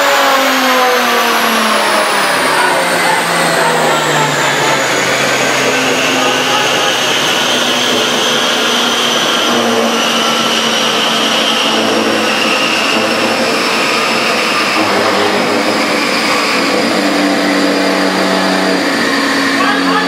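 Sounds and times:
fans whooshing drone: 0:00.0 - 0:20.0.

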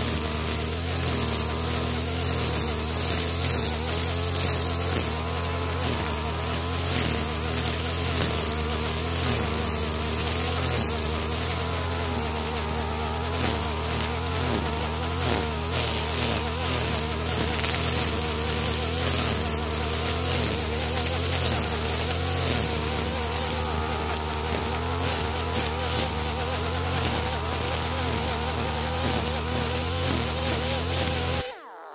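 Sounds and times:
brushcutter engine running: 0:00.0 - 0:31.9.

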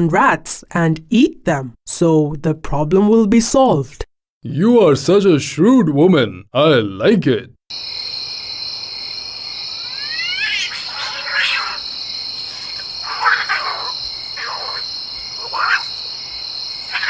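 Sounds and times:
crickets chirping: 0:07.7 - 0:17.0
short animal calls: 0:09.8 - 0:11.8, 0:12.4 - 0:16.2.

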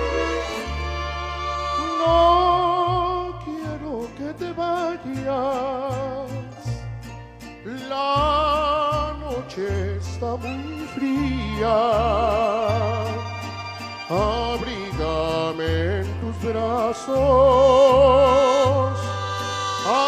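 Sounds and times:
violins: 0:00.0 - 0:03.2, 0:10.4 - 0:20.0
man singing with vibrato: 0:00.0 - 0:06.8, 0:07.6 - 0:20.0
bass guitar line: 0:00.0 - 0:20.0.

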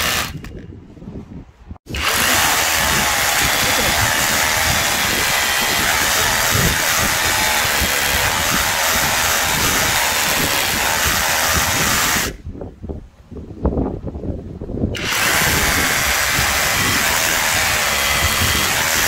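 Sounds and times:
rotary hammer drilling concrete: 0:00.0 - 0:00.6, 0:01.9 - 0:12.4, 0:15.0 - 0:19.0.

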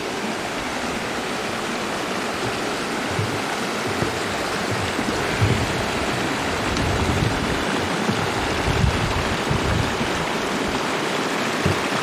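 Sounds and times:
stream rushing over rocks: 0:00.0 - 0:12.0
low thumps: 0:02.3 - 0:10.2.

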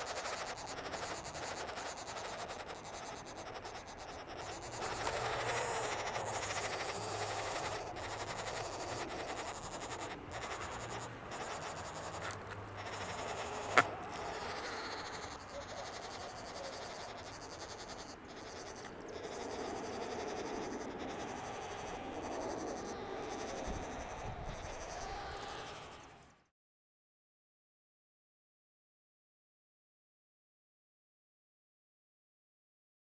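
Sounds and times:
nestlings begging buzzy chorus: 0:00.0 - 0:26.4.

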